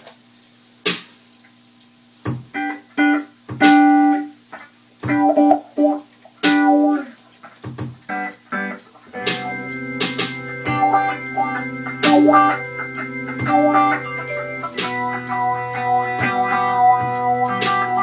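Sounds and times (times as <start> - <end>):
electric guitar chords: 2.3 - 18.0
organ-like keyboard chord: 2.6 - 4.3, 5.1 - 7.1, 8.2 - 18.0.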